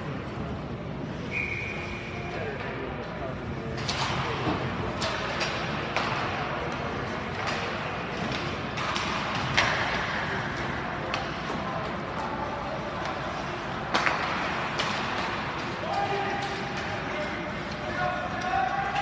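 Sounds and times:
hockey sticks clacking on puck: 2.6s - 19.0s
puck hitting boards: 7.3s - 10.4s, 13.9s - 15.6s
voices: 10.1s - 19.0s.

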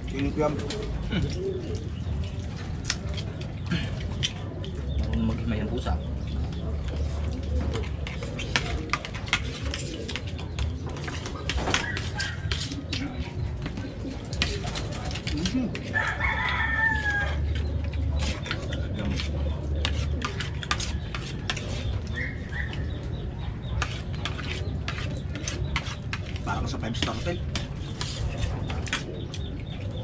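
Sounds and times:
rooster crowing: 15.9s - 17.5s.

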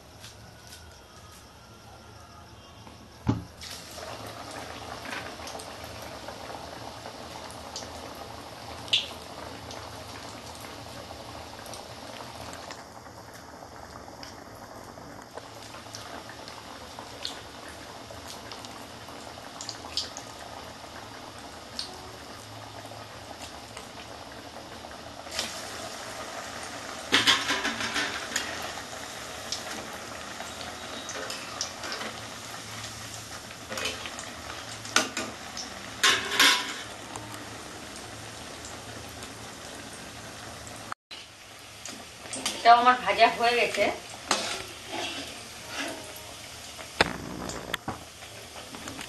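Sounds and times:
oil sizzling while deep-frying: 3.2s - 49.0s
spatula clatter: 44.3s - 46.0s.

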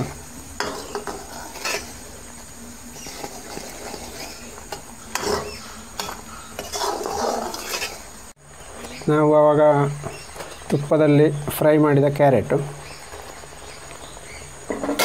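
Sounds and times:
ladle stirring thick mixture: 0.6s - 8.1s.

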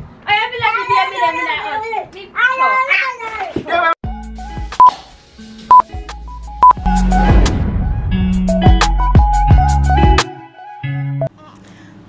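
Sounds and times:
music with heavy beat: 4.0s - 10.4s.

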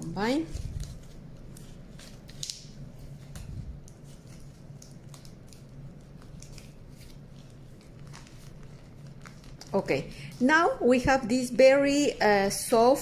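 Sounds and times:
plastic bag crinkling: 0.3s - 10.1s.

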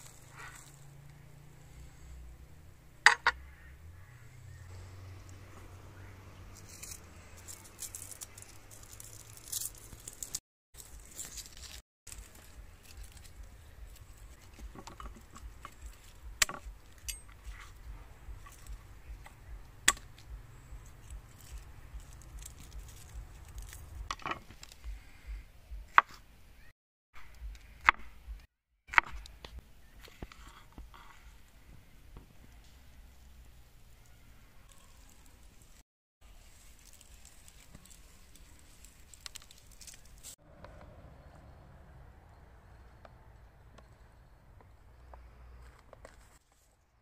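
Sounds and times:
garlic crackling and handling: 6.4s - 24.8s, 34.6s - 40.4s.

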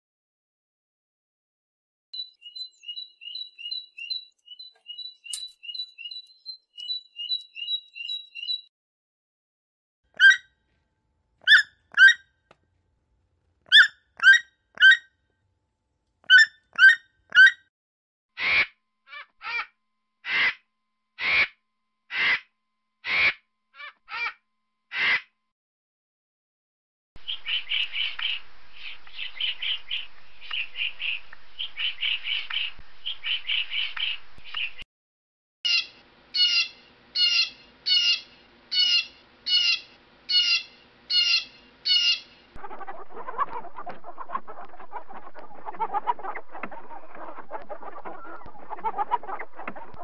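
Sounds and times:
woodpecker calling: 2.2s - 8.7s, 10.2s - 10.5s, 11.5s - 12.2s, 13.7s - 15.0s, 35.7s - 50.0s
toucan croaking calls: 10.2s - 10.5s, 11.5s - 12.2s, 13.7s - 15.1s, 16.3s - 17.6s, 35.7s - 50.0s
vultures squawking: 35.7s - 50.0s.

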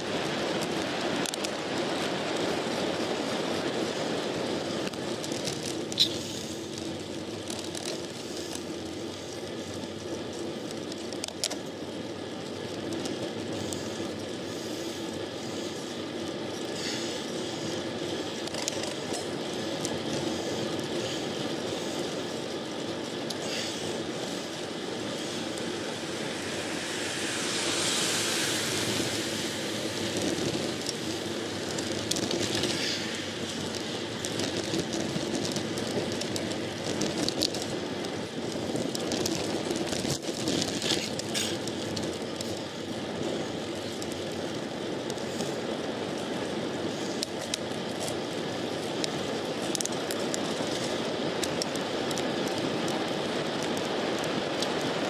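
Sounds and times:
bicycle tyre and wind rush: 0.0s - 55.0s
light clicks and rattles: 18.4s - 21.9s.

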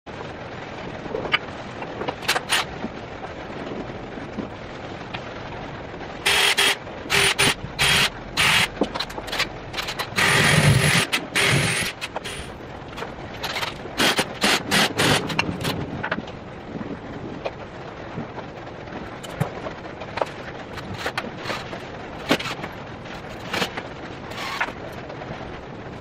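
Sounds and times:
cordless drill drilling wood: 6.3s - 8.7s, 10.2s - 12.5s.

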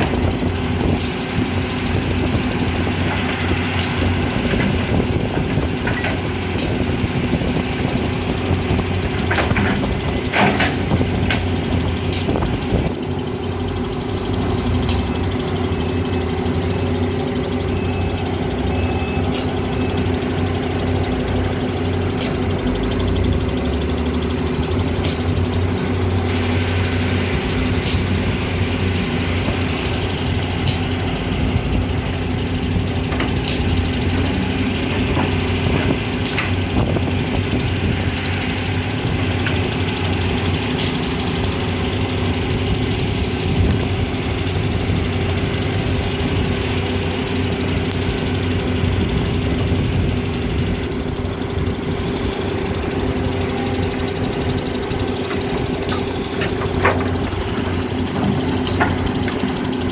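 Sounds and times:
excavator engine under load: 0.0s - 59.9s
faint reversing beeper: 17.6s - 20.1s.

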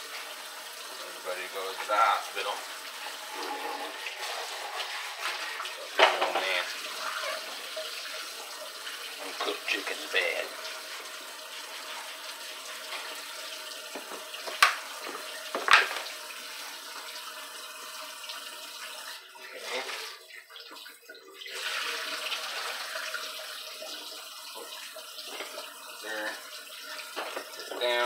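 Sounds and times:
faucet running into steel sink: 0.0s - 28.0s
rag wiping sink: 1.0s - 8.3s.

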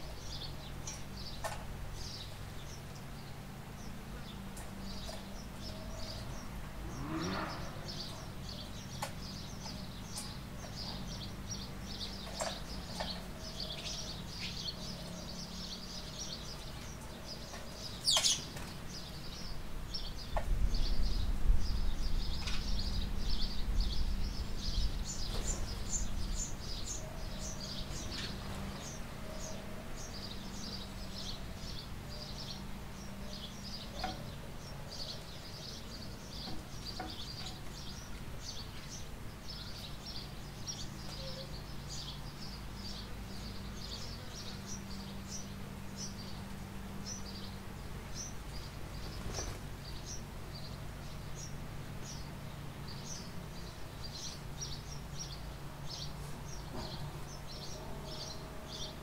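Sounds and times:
small birds chirping: 0.0s - 59.0s
steady low hum: 0.0s - 59.0s
low rumble: 19.9s - 26.8s.

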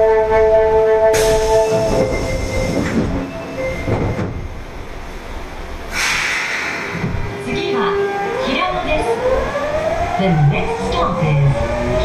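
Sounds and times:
train rolling rumble: 0.0s - 12.0s
rush of noise: 5.9s - 7.9s.

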